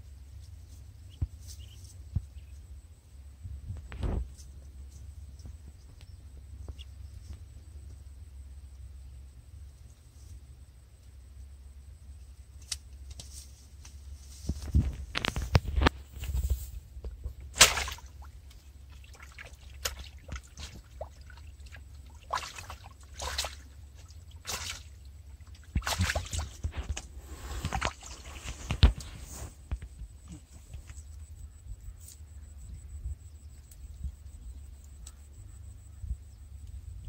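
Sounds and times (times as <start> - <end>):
water dripping and splashing: 17.6 - 27.0
wet net rustling: 18.9 - 29.5.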